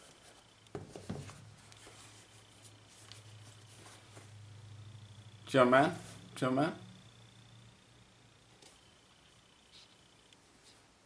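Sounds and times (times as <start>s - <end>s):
low steady hum: 0.0s - 11.0s
sneaker handling noise: 0.7s - 2.0s.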